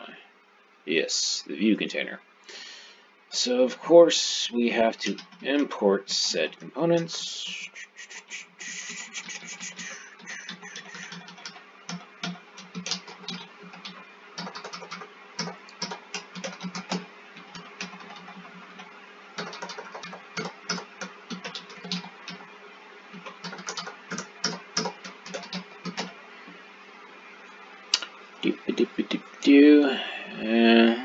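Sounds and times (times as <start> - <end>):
typing on computer keyboard: 10.4 - 18.3, 19.4 - 22.4, 23.2 - 26.1.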